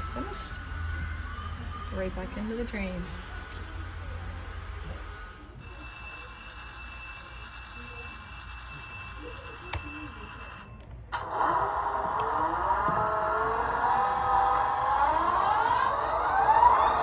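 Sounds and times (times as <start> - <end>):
high-pitched whine: 11.1 - 17.0.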